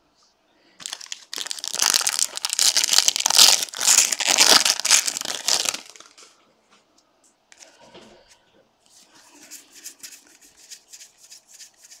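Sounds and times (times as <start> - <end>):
wrapper crinkling: 0.8 - 6.3.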